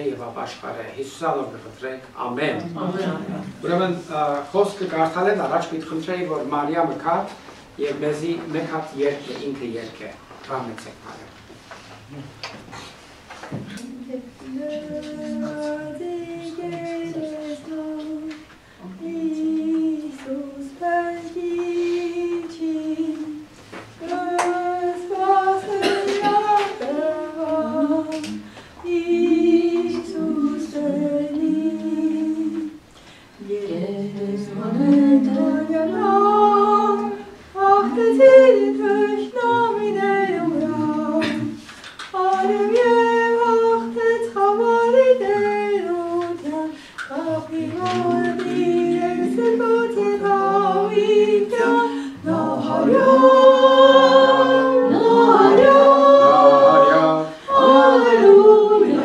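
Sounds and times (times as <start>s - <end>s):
woman singing unaccompanied: 13.7s - 59.0s.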